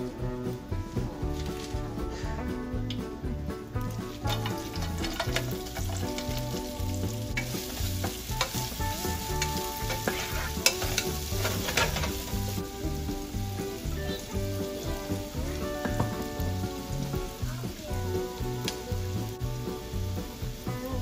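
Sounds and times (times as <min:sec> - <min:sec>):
wooden spatula scraping pan: 0:03.8 - 0:17.8
onions sizzling in oil: 0:03.8 - 0:21.0.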